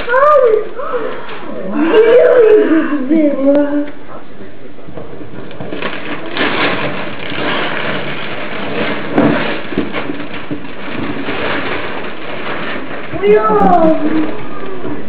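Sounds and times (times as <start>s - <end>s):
wrapping paper tearing and rustling: 5.6s - 15.0s.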